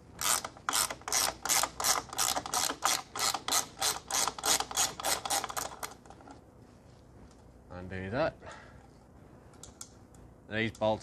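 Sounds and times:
ratcheting spanner clicking: 0:00.2 - 0:06.2.

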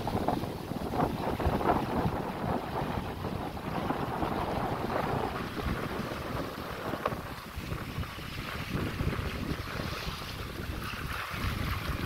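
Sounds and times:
water splashing along hull: 0:00.0 - 0:12.0
wind buffeting microphone: 0:00.0 - 0:12.0.

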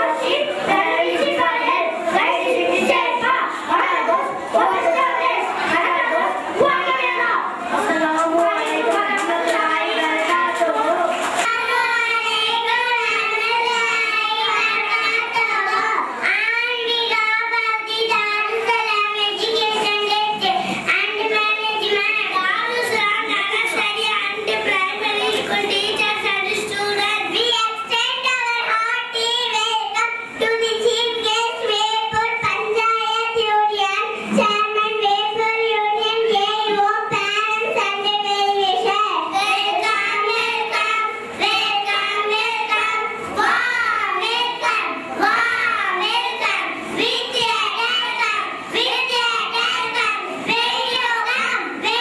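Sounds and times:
girls singing in unison: 0:07.6 - 0:18.6, 0:36.7 - 0:52.0.

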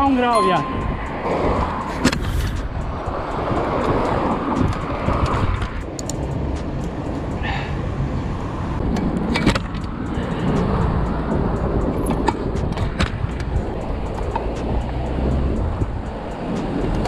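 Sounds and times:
wind on microphone: 0:00.6 - 0:05.9
bike rattling and clicking: 0:01.6 - 0:07.3.

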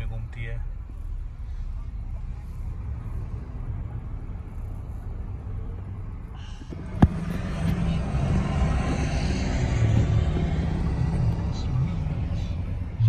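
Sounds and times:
car road noise inside cabin: 0:00.0 - 0:13.0.

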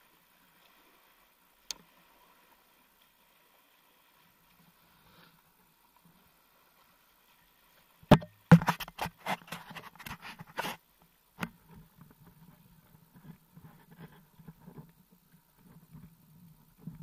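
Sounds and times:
knocks on camera housing: 0:08.1 - 0:08.8.

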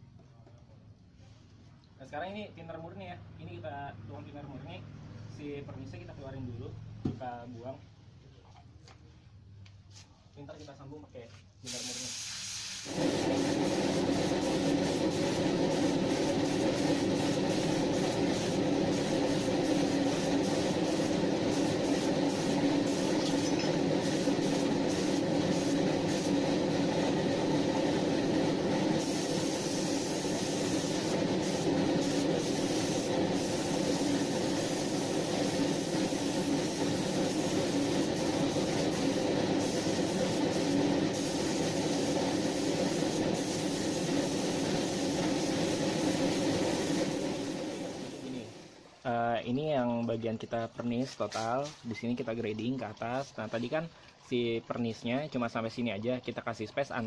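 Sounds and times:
spray gun hissing: 0:11.6 - 0:48.8
air compressor drone: 0:12.5 - 0:48.7.

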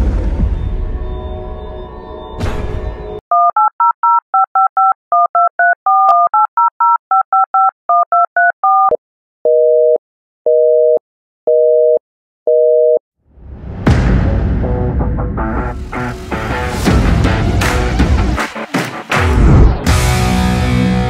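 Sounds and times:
telephone keypad tones: 0:03.3 - 0:13.0.

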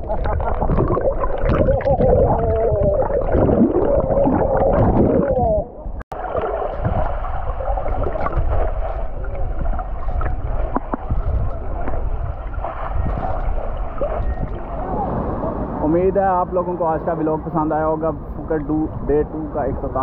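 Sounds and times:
underwater water sloshing and gurgling: 0:00.0 - 0:15.9
muffled underwater rush: 0:00.0 - 0:20.0.

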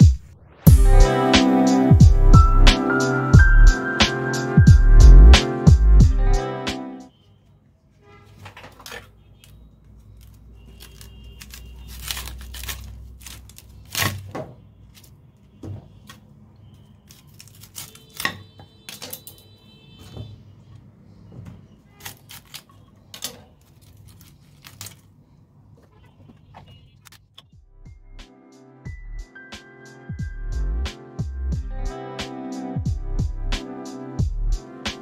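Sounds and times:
cauliflower florets snapping: 0:10.2 - 0:14.3, 0:17.0 - 0:19.3.

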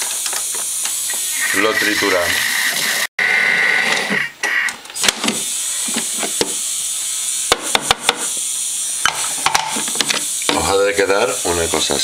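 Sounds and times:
kitchen robot motor whining: 0:00.0 - 0:04.3.

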